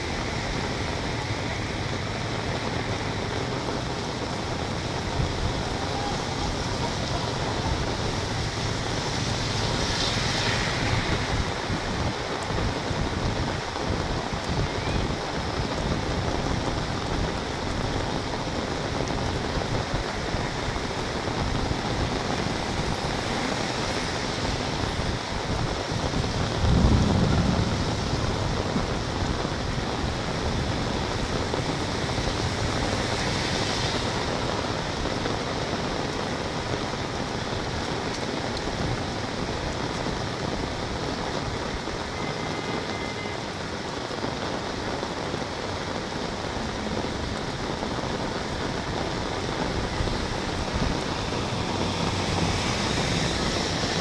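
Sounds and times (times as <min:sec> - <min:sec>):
heavy rain on pavement: 0:00.0 - 0:54.0
deep rumble: 0:26.3 - 0:30.2.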